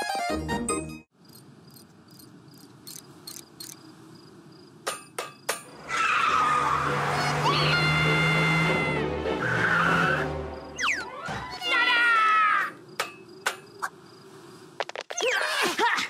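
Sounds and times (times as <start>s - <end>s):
crickets chirping: 1.1s - 5.8s, 10.3s - 15.4s.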